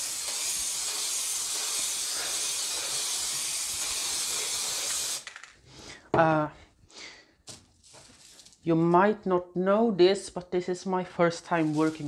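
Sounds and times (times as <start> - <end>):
aerosol spray hissing: 0.0 - 5.3, 11.6 - 12.0.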